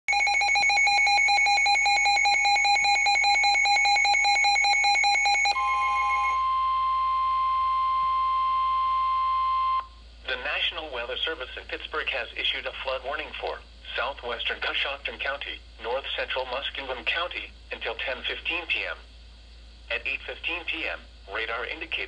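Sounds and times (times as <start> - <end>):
rapid pulsing alarm beeps: 0.1 - 9.9
steady single-pitch alarm tone: 0.1 - 10.0.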